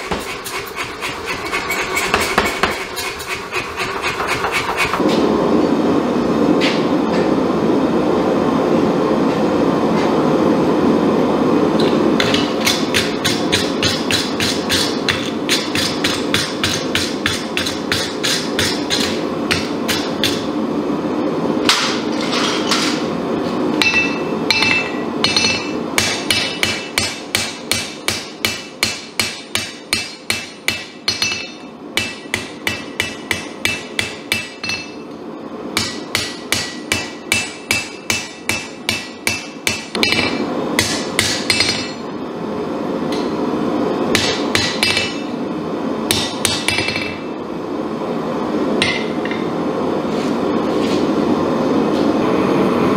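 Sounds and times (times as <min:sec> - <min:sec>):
steady background noise: 0:00.0 - 0:52.9
hammer striking steel on anvil: 0:12.2 - 0:20.5, 0:23.8 - 0:35.1, 0:35.8 - 0:42.1, 0:44.1 - 0:45.4, 0:46.1 - 0:47.3, 0:48.8 - 0:49.5.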